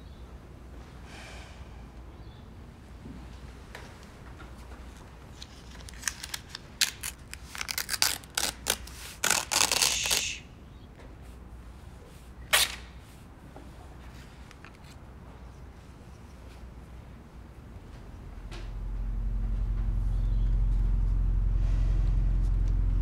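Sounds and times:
paper crackling: 4.8s - 10.4s
paper tearing: 5.6s - 10.4s.

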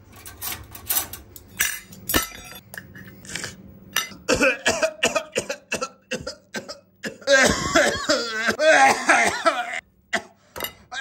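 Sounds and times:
man coughing: 4.2s - 10.4s.

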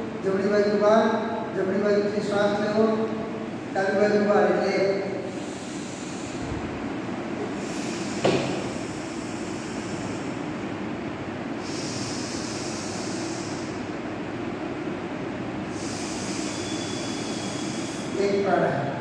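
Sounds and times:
steady background noise: 0.0s - 19.0s
hissing breaths through nostril: 5.3s - 6.7s, 7.5s - 10.4s, 11.6s - 13.8s, 15.7s - 18.2s.

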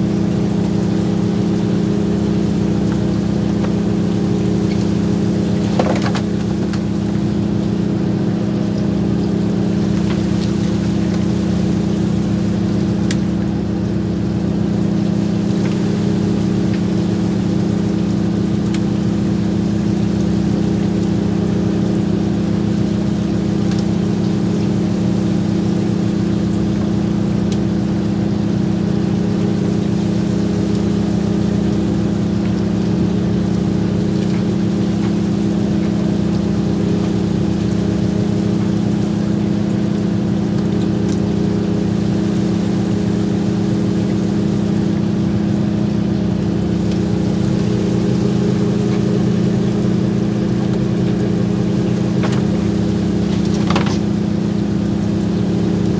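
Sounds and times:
boat engine droning: 0.0s - 55.9s.

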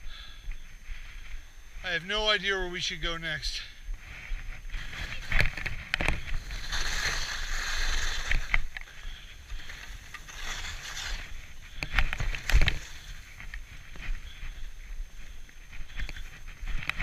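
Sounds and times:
skis swishing through snow: 4.0s - 17.0s.

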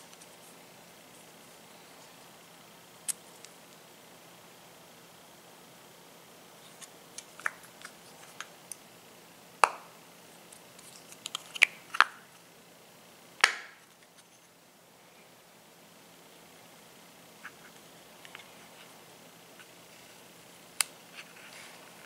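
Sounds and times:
sharp plastic snaps: 13.4s - 13.8s.

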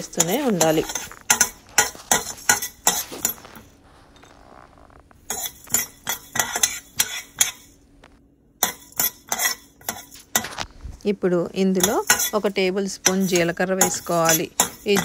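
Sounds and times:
spoon scraping seeds in metal pan: 0.0s - 4.4s, 5.3s - 7.7s, 8.6s - 10.7s, 11.8s - 15.0s.

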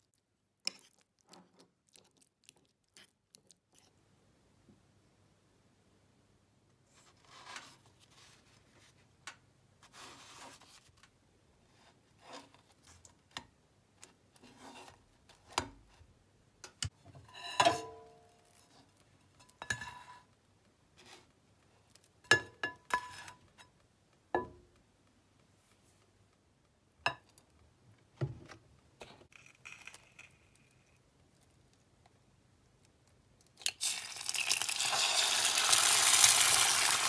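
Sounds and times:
pan and dishware clinking: 17.2s - 18.3s.

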